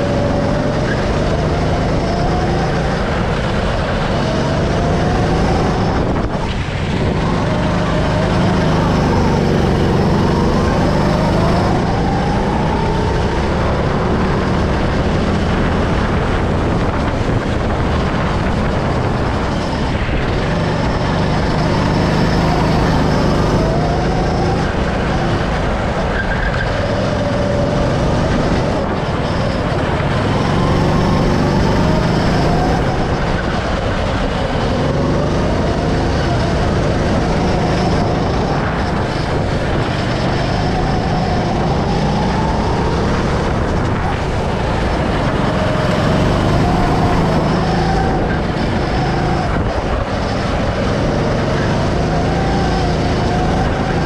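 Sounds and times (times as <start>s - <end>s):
go-kart engine running hard: 0.0s - 54.0s.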